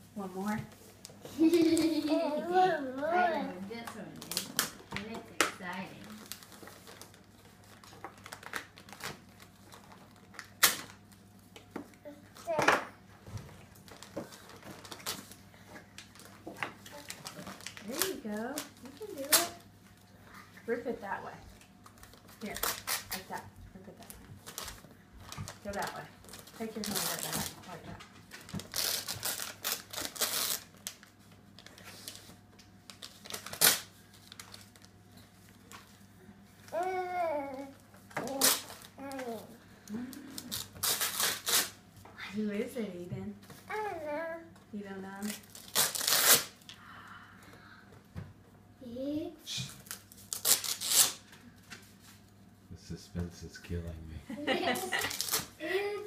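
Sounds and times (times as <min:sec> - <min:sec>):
wrapping paper rustling: 0:00.8 - 0:11.7, 0:13.6 - 0:20.1, 0:21.6 - 0:36.0, 0:36.6 - 0:41.8, 0:45.2 - 0:46.7, 0:49.8 - 0:52.3, 0:54.6 - 0:56.0.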